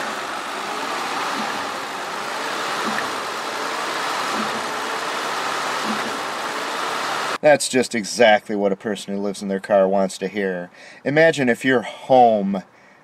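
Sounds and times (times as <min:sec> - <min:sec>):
car engine whirring: 0:00.0 - 0:07.4
faint low engine knock: 0:01.2 - 0:03.4, 0:04.2 - 0:05.0.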